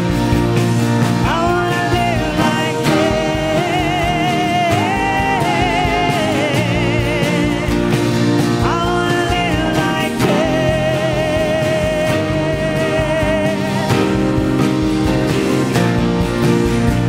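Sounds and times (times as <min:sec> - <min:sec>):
worship band playing live: 0:00.0 - 0:17.0
woman singing with vibrato: 0:01.3 - 0:08.0, 0:08.6 - 0:13.9.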